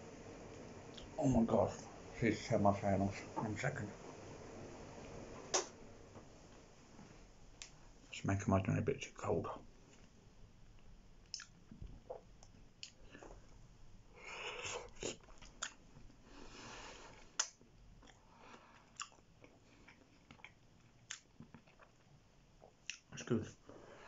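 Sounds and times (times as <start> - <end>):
man chewing food: 10.6 - 13.4, 14.2 - 23.1.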